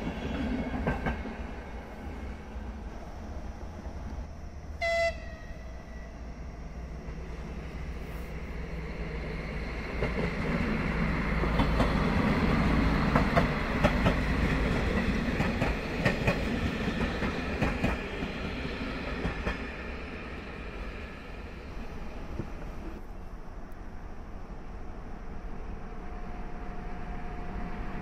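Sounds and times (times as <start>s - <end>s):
train wheels rumbling and clicking: 0.0s - 1.7s, 7.1s - 21.0s, 21.6s - 23.1s.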